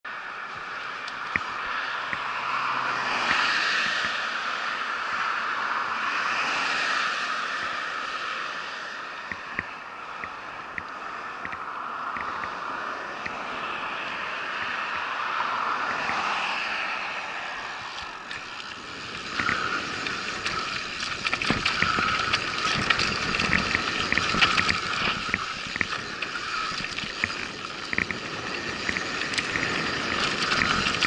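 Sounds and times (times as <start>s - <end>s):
bicycle tyre noise: 0.1s - 31.0s
wind rushing over microphone: 0.1s - 31.0s
small clicks and rattles: 17.7s - 31.0s.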